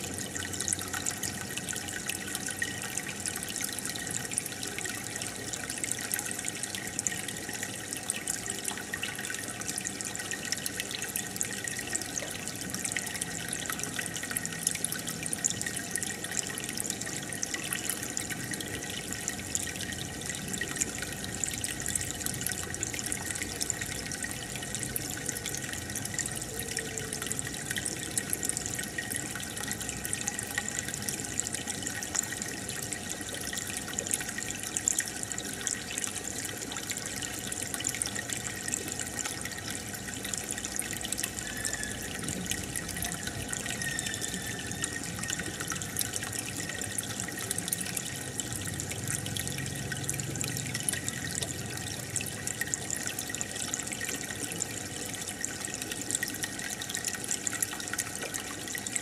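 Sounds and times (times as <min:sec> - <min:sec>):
water trickling and bubbling: 0:00.0 - 0:59.0.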